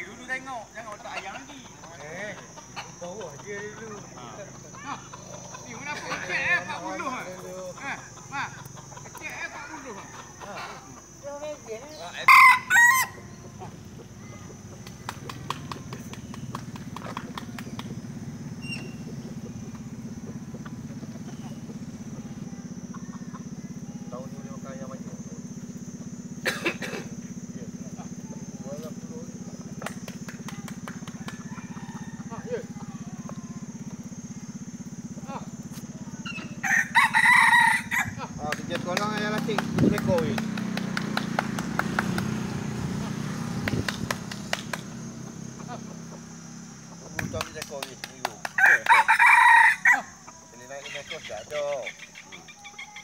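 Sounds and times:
small engine humming: 0:00.0 - 0:53.0
rooster crowing: 0:09.5 - 0:11.1, 0:12.0 - 0:14.4, 0:31.0 - 0:34.6, 0:36.2 - 0:38.4, 0:48.4 - 0:50.7.

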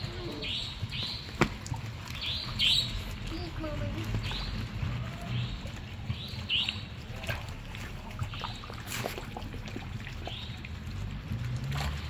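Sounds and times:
small water splashes: 0:00.0 - 0:12.0
water sloshing and trickling: 0:00.0 - 0:12.0
bird chirping: 0:02.1 - 0:03.5.

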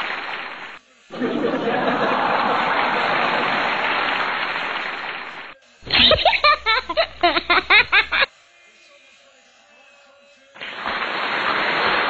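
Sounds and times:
crowd cheering and applauding: 0:00.0 - 0:05.5, 0:10.6 - 0:12.0.

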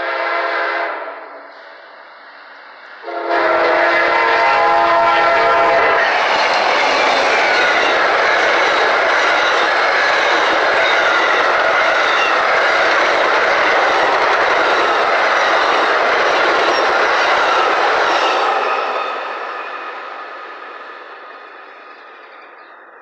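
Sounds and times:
train wheels clattering on rail: 0:05.9 - 0:22.9.

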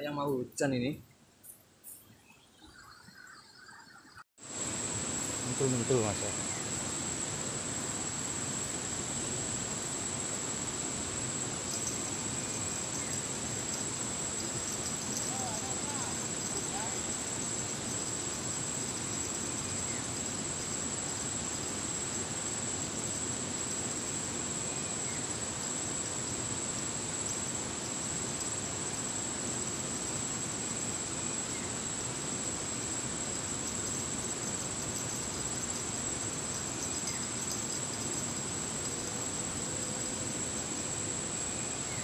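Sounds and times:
high-pitched insect tone: 0:00.0 - 0:42.0.

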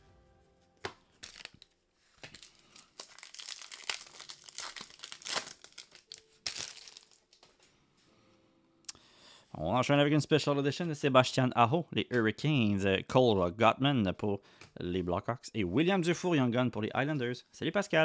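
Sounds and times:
thin plastic crinkling: 0:01.0 - 0:07.7.

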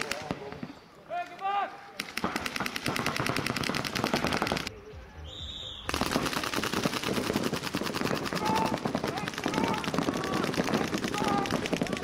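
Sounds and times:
paintball markers firing rapidly: 0:02.0 - 0:04.7, 0:05.9 - 0:12.0.

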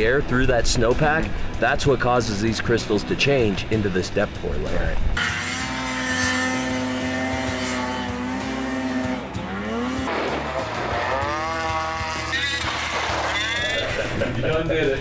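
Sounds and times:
snowmobile engine revving: 0:05.2 - 0:14.3.

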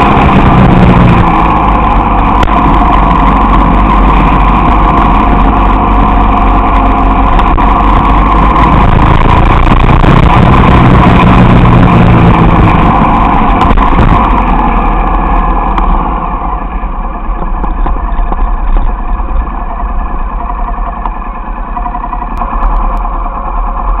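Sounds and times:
wind rush on microphone: 0:00.0 - 0:16.3
motorcycle engine running: 0:00.0 - 0:24.0.

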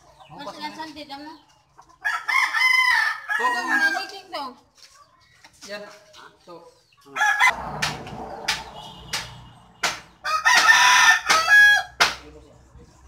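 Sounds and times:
rooster crowing: 0:02.0 - 0:04.2, 0:07.2 - 0:09.0, 0:10.2 - 0:12.0.

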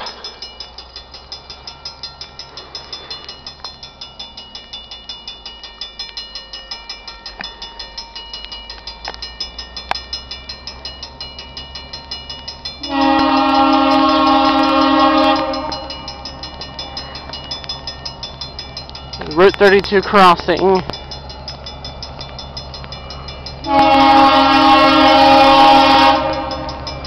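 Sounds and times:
crossing warning bell ringing: 0:00.0 - 0:27.0
locomotive air horn blast: 0:12.9 - 0:15.9, 0:23.7 - 0:26.8.

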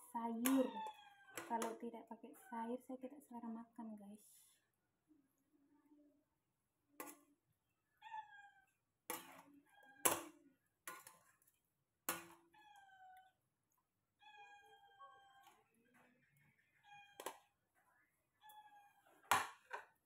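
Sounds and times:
cat meowing: 0:08.0 - 0:08.8, 0:12.5 - 0:13.4, 0:14.2 - 0:15.6, 0:18.4 - 0:19.0.

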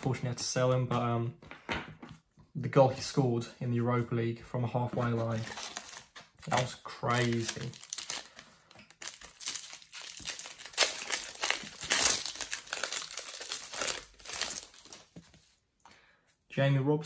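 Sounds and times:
foil packet crinkling: 0:05.2 - 0:15.3.

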